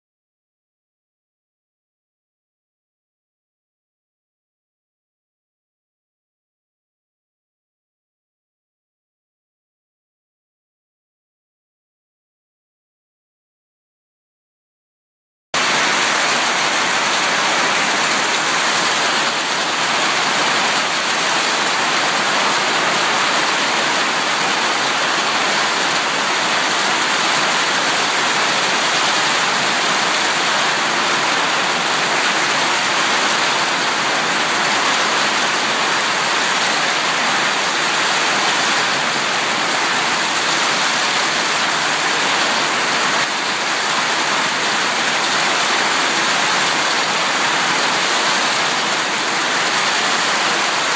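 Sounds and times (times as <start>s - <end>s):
hail and heavy rain falling: 15.6s - 50.9s.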